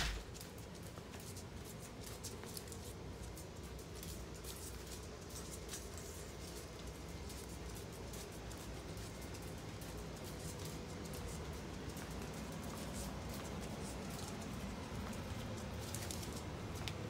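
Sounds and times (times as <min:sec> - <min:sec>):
sharp knock: 0:00.0 - 0:00.2
dog claws clicking on concrete: 0:00.0 - 0:17.0.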